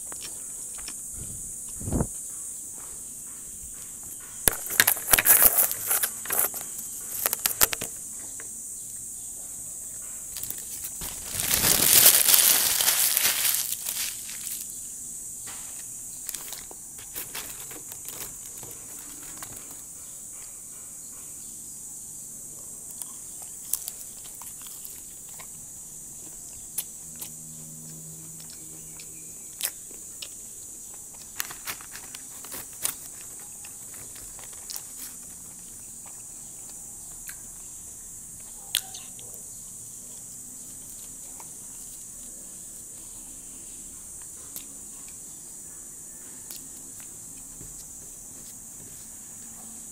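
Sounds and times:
steady high hiss: 0:00.0 - 0:22.9
paper wrapper rustling: 0:04.5 - 0:07.8, 0:10.4 - 0:14.7, 0:16.3 - 0:19.6, 0:31.4 - 0:35.2
person chewing fries: 0:10.4 - 0:14.8, 0:23.0 - 0:25.6, 0:28.4 - 0:37.4.

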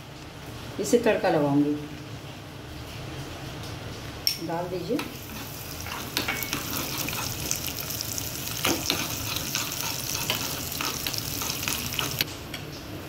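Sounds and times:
seeds sizzling in hot oil: 0:04.5 - 0:12.3
metal spoon scraping pan: 0:05.0 - 0:07.8, 0:08.4 - 0:12.3.

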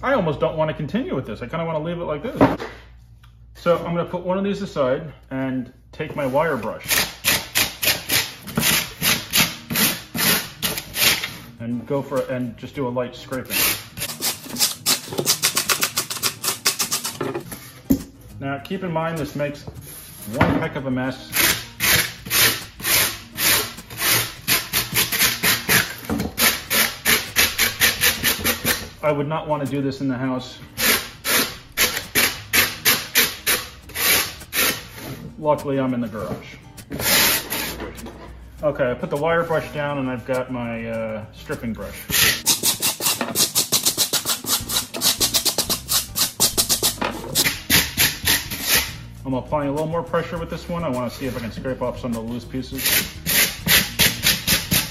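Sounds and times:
wire brush scraping foam board: 0:06.2 - 0:11.4, 0:13.3 - 0:17.8, 0:21.3 - 0:28.9, 0:30.8 - 0:35.2, 0:36.9 - 0:38.0, 0:42.0 - 0:49.0, 0:52.7 - 0:54.9
brush rasping on foam board: 0:42.1 - 0:47.0.

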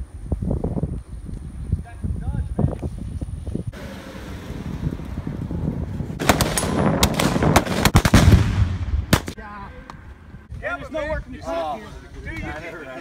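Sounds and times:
explosive charge blast: 0:06.2 - 0:09.4
rifle gunfire volley: 0:06.2 - 0:09.4.

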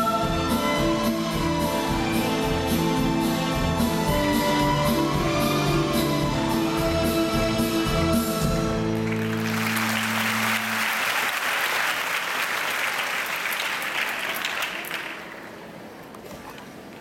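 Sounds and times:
audience applause: 0:08.9 - 0:15.7.

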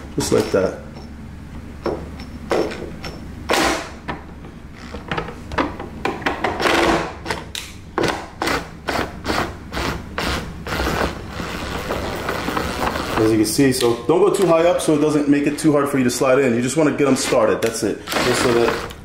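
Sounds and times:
scraping: 0:10.7 - 0:13.5.

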